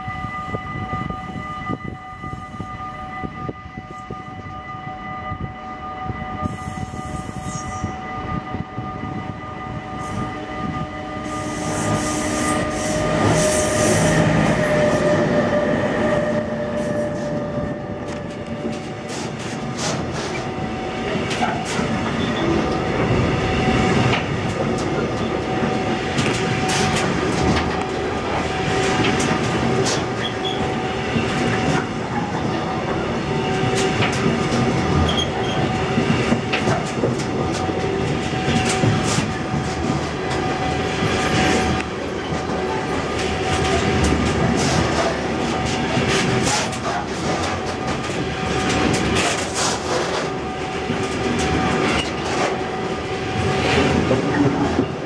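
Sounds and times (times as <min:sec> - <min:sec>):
train wheels rumbling: 0:00.0 - 0:55.0
wheels clacking over rail joints: 0:16.7 - 0:55.0.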